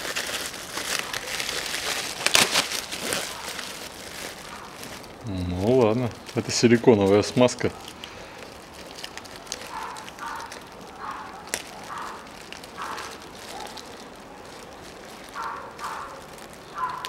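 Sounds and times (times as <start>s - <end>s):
plastic sachet crackling: 0.0s - 17.0s.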